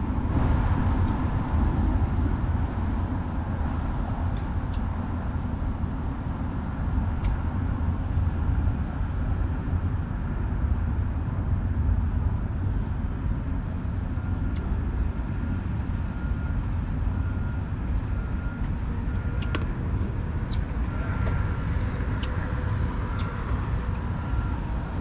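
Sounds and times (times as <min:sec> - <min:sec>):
vehicle rumble from inside: 0:00.0 - 0:25.0.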